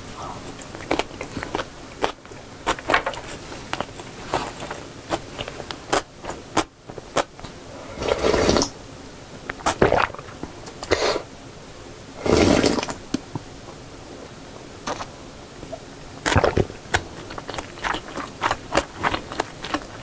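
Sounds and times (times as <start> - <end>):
loud sipping of soup: 7.8 - 8.7.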